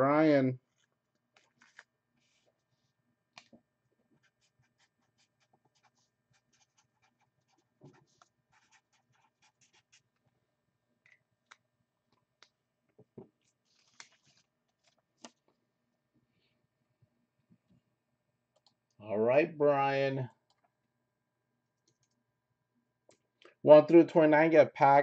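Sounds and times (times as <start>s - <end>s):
small clicks: 18.5s - 18.9s, 21.8s - 22.2s.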